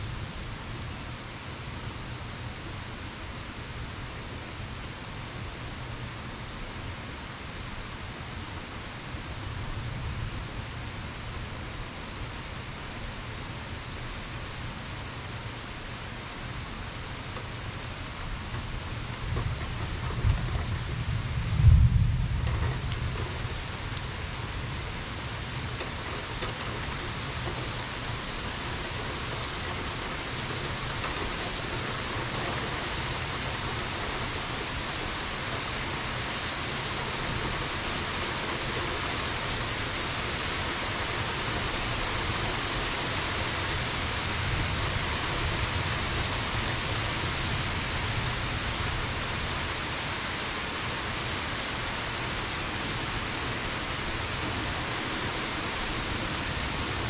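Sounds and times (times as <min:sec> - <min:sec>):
rain falling: 0:00.0 - 0:57.0
raindrops ticking close by: 0:16.6 - 0:57.0.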